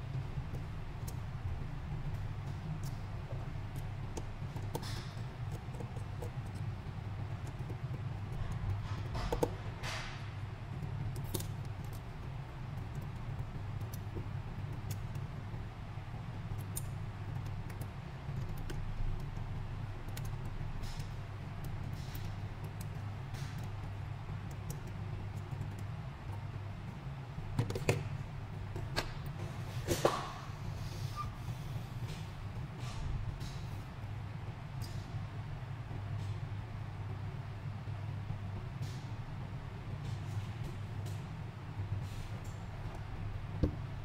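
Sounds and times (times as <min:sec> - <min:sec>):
low electrical hum: 0:00.0 - 0:44.0.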